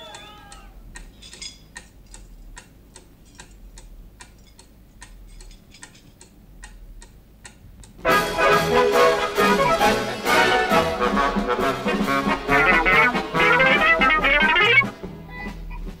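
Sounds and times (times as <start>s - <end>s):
clock ticking: 0.1s - 15.0s
orchestral brass music: 8.0s - 15.2s.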